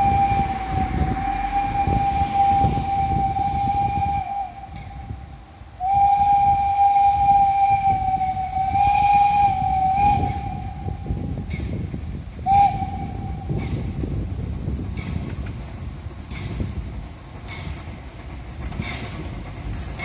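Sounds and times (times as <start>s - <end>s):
steam whistle blasts: 0.0s - 11.4s, 12.4s - 13.6s.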